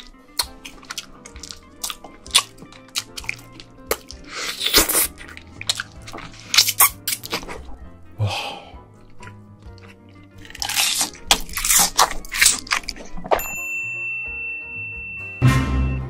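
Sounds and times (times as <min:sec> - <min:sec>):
crab eating smacks and crunches: 0:00.0 - 0:07.8, 0:09.1 - 0:13.4
soft background music: 0:00.0 - 0:16.0
loud slurps: 0:04.1 - 0:07.4.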